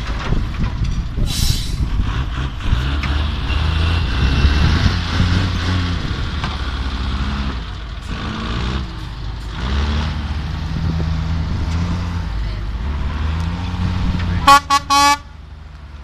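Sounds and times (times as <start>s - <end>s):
diesel truck engine at low revs: 0.0s - 16.0s.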